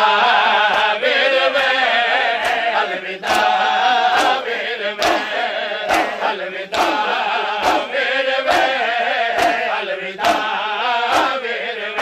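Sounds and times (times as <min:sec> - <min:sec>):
men chanting a lament: 0:00.0 - 0:12.0
hands slapping bare chests: 0:02.4 - 0:10.5, 0:11.1 - 0:11.4.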